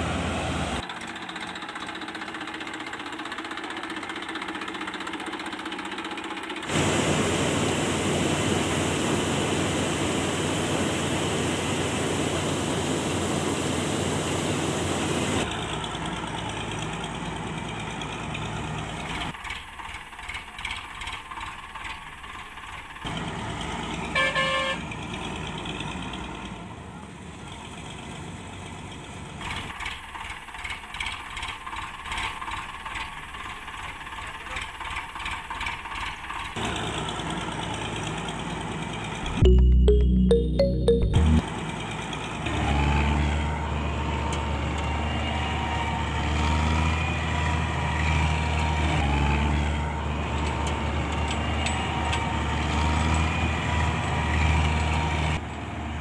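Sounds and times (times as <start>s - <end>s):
toy tractor motor ticking: 19.3s - 23.0s, 29.5s - 36.6s.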